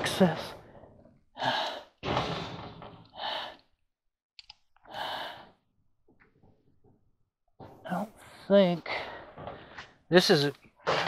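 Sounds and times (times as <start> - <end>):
faint clicks: 4.4 - 4.9.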